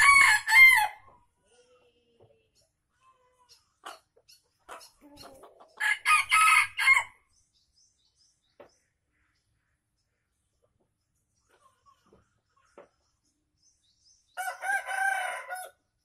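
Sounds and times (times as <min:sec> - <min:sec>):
rooster crowing: 0:00.0 - 0:01.1, 0:05.8 - 0:07.1, 0:14.4 - 0:15.8.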